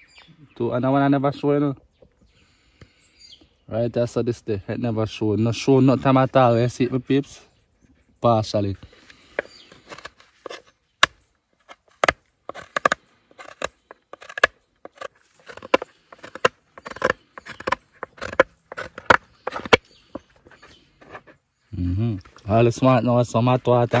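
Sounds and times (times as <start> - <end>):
knife scraping gourd shell: 8.9 - 21.5.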